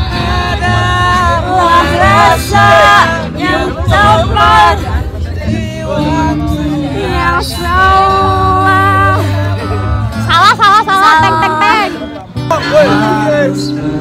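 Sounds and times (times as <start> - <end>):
group singing along: 0.0 - 14.0
music: 0.0 - 14.0.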